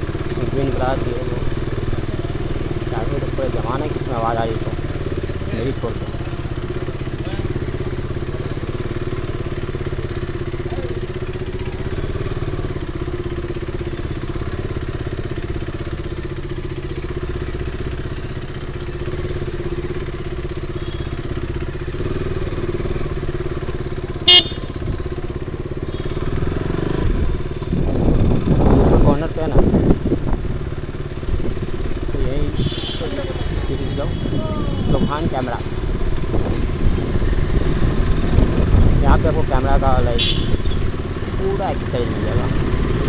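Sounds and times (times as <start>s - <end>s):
motorcycle engine running: 0.0s - 43.0s.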